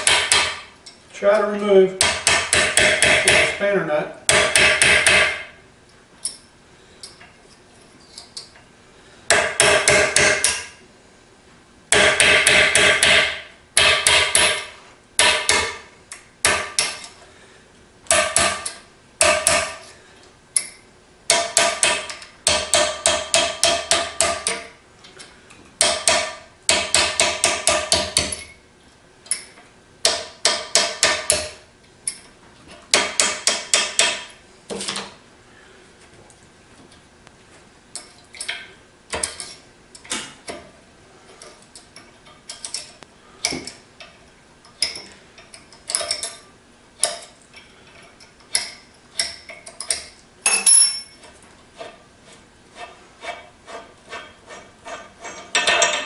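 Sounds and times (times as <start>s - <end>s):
hammer tapping steel punch: 0.0s - 0.7s, 2.0s - 3.6s, 4.3s - 5.6s, 9.3s - 10.7s, 11.9s - 17.1s, 18.1s - 19.8s, 20.6s - 24.7s, 25.8s - 28.5s, 29.3s - 32.3s, 32.9s - 34.4s, 48.5s - 51.2s.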